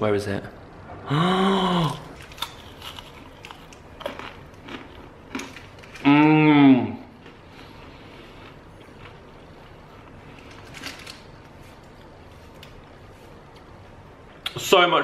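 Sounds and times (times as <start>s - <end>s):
crunchy chewing: 2.0s - 6.1s, 7.2s - 11.2s.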